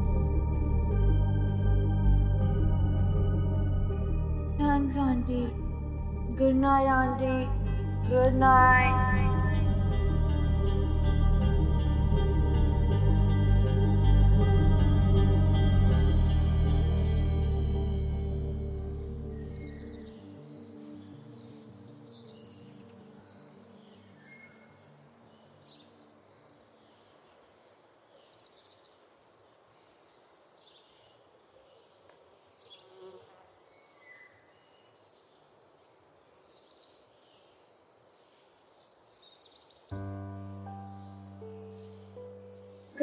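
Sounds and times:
low hum: 0.0s - 20.1s
soft background music: 0.0s - 27.4s, 39.9s - 43.0s.

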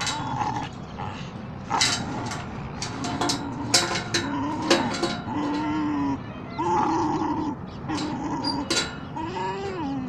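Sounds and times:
metal chain rattling: 1.6s - 6.1s, 7.9s - 9.2s.

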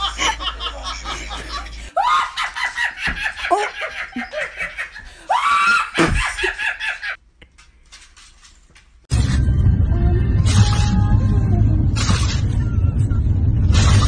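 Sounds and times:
woman laughing: 0.0s - 7.2s
woman shrieking: 5.3s - 6.2s.

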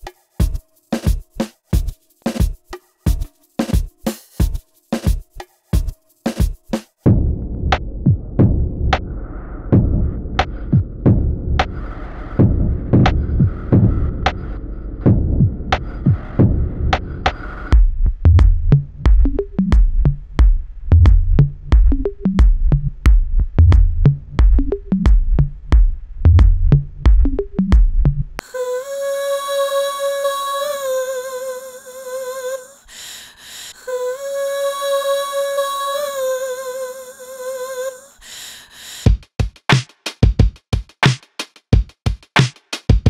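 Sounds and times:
drum machine beat with bass: 0.0s - 7.4s, 8.0s - 9.0s, 9.8s - 11.7s, 12.4s - 14.4s, 15.1s - 28.4s, 39.1s - 43.0s.

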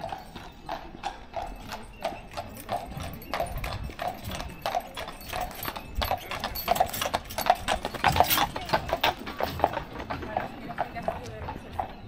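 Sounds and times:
horse hooves on paved road: 0.0s - 12.0s.

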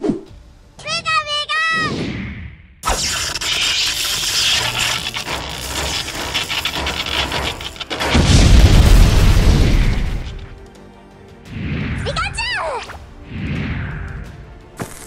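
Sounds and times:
electric crackling: 2.8s - 10.6s
deep explosion boom: 6.4s - 10.5s.

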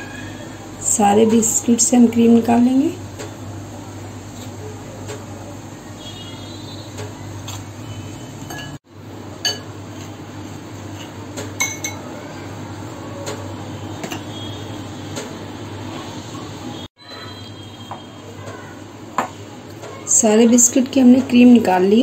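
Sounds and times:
spoon clinking against glass bowl: 8.5s - 8.8s, 9.4s - 9.7s, 11.6s - 12.0s.

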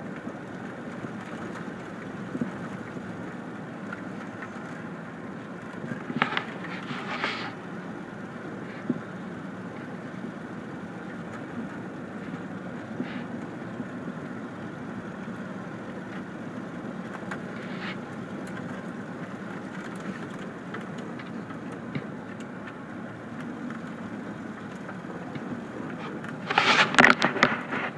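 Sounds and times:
small clicks and ticks: 0.0s - 7.5s, 15.2s - 27.9s
low engine hum: 0.0s - 27.9s.

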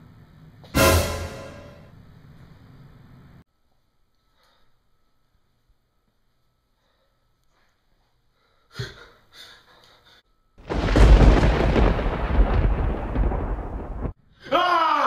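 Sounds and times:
loud rumbling blast: 10.7s - 14.2s.

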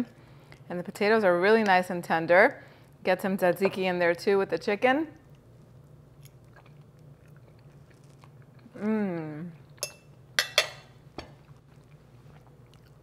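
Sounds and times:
woman chewing food: 5.3s - 8.8s, 11.3s - 13.0s
woman humming mmm: 8.7s - 9.7s.

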